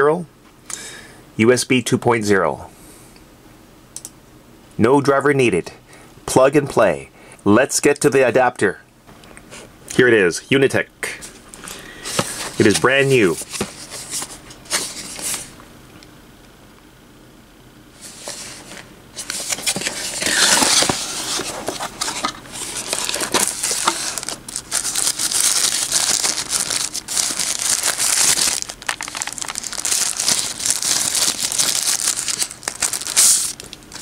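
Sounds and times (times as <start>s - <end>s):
packaging crinkling and rustling: 11.5s - 15.6s, 18.1s - 34.0s.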